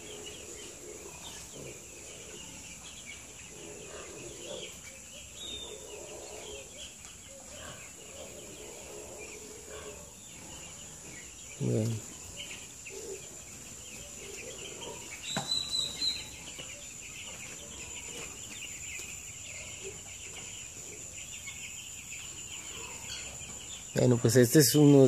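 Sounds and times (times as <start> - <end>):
chicks peeping: 0.0 - 25.0.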